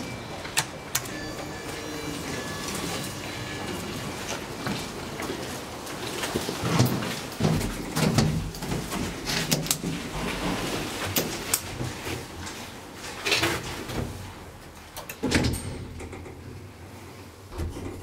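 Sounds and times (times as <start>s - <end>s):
elevator doors sliding: 0.0s - 12.2s, 17.4s - 18.0s.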